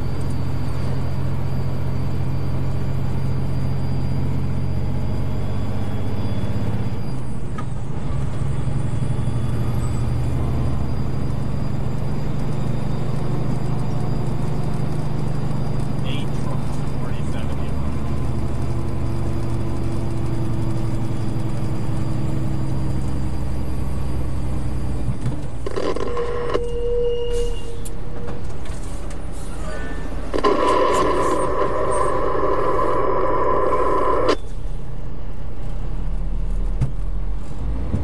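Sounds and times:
car engine and road rumble: 0.0s - 38.0s
brief steady tone: 25.7s - 28.5s, 29.6s - 34.5s.

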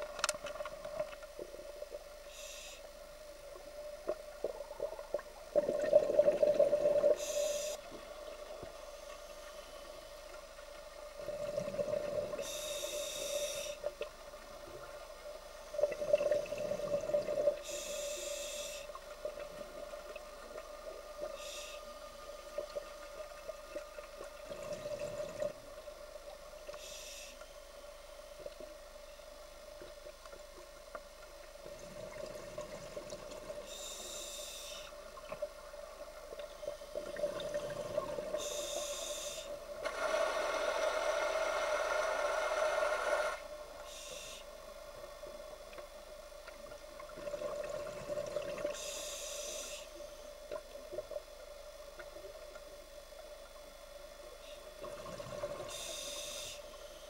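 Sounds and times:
hissing regulator inhalations: 2.2s - 3.0s, 6.4s - 7.9s, 11.3s - 13.9s, 16.8s - 19.4s, 21.2s - 22.7s, 26.7s - 27.5s, 33.6s - 35.0s, 38.3s - 44.6s, 48.7s - 50.0s, 55.3s - 57.0s.

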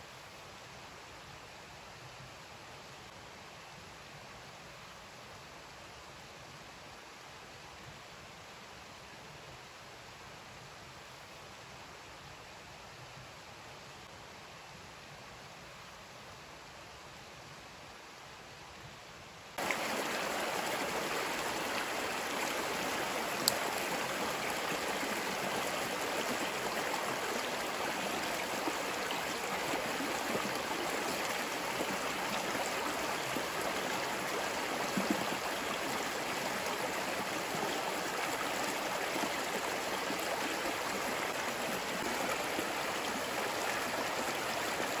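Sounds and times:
faint hiss: 0.0s - 45.0s
stream rushing over stones: 19.6s - 45.0s.

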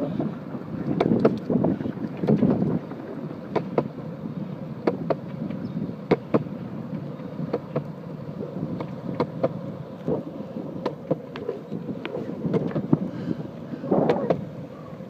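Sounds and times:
skateboard wheels rumbling on concrete: 0.2s - 15.0s
wheels clicking over pavement joints: 0.8s - 15.0s.

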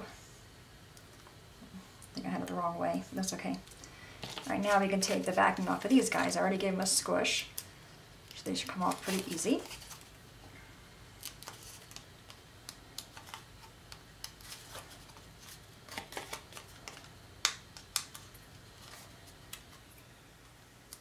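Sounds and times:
peeling paper backing: 3.7s - 6.4s, 8.3s - 10.1s, 11.2s - 17.1s.

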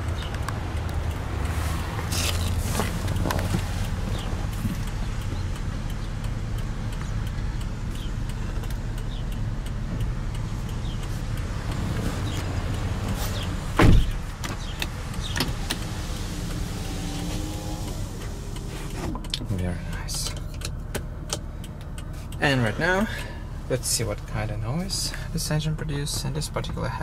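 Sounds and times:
car engine idling: 0.0s - 27.0s
car door shutting: 13.2s - 19.4s
power window motor whining: 14.0s - 19.2s.

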